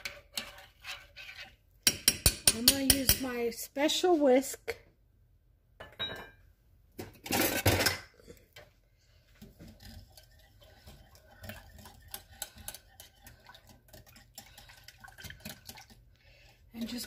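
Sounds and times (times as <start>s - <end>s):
whisk ticking against glass bowl: 9.8s - 15.9s.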